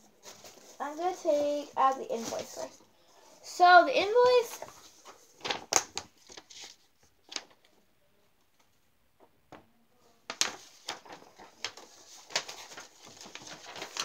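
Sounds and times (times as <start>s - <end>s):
paper rustling and crackling: 0.2s - 2.9s, 4.0s - 7.8s, 10.2s - 14.0s.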